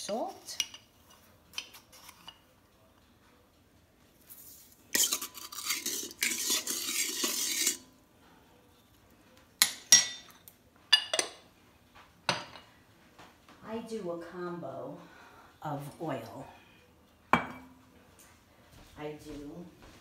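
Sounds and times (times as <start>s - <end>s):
spoon scraping metal bowl: 0.1s - 2.4s, 4.3s - 8.0s
spoon clinking on metal bowl: 5.0s - 7.8s.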